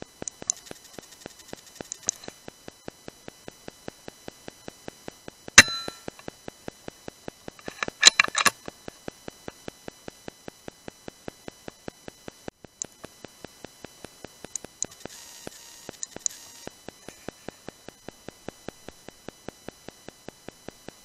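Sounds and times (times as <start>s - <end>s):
faint steady ticking: 0.0s - 21.0s
metallic bolt clicks: 7.6s - 8.6s.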